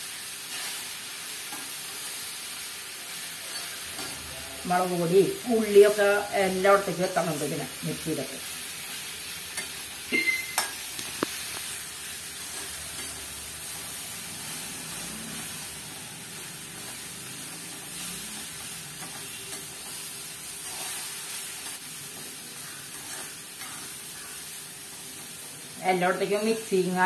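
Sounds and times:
stir-fry sizzling in a pan: 0.0s - 27.0s
metal spoon stirring and scraping: 3.2s - 4.7s, 16.8s - 20.0s, 22.6s - 24.4s
spoon clinking on pan: 10.1s - 10.8s.

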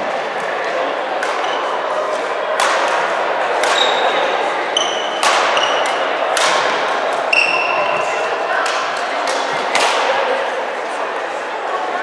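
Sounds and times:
rackets hitting shuttlecock: 1.2s - 10.1s.

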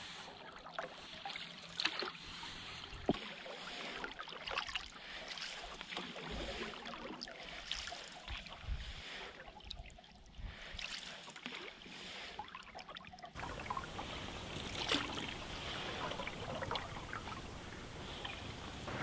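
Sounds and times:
canoe paddle strokes: 0.0s - 12.5s, 13.4s - 19.0s
steady hiss of water: 13.4s - 19.0s
water dripping off paddle: 13.4s - 19.0s.

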